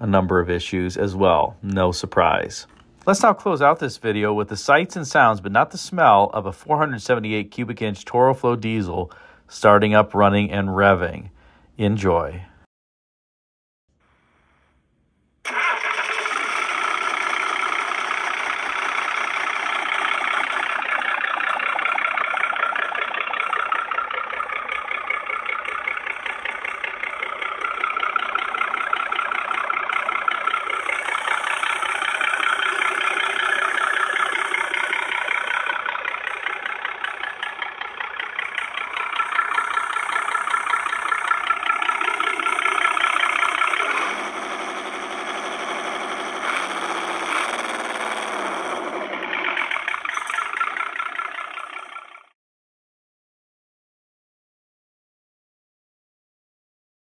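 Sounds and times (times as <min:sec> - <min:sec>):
diesel engine knocking: 0:16.3 - 0:51.9.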